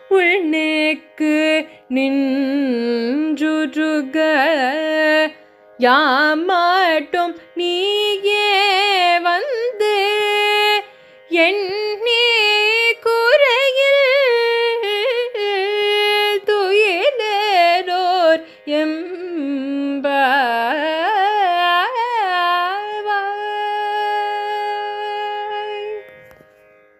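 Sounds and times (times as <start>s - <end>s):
woman singing devotional verse: 0.0s - 26.1s.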